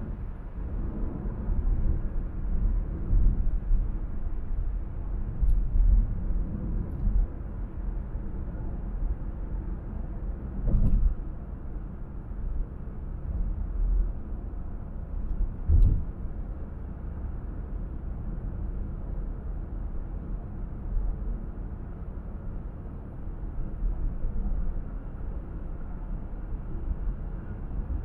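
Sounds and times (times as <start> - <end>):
car driving rumble: 10.1 - 21.3
short thump: 10.6 - 11.1, 15.7 - 16.1.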